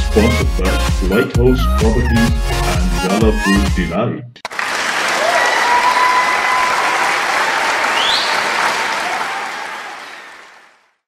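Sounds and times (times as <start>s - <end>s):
audience applause and cheering: 4.4s - 11.0s
rising whistle: 7.9s - 8.5s.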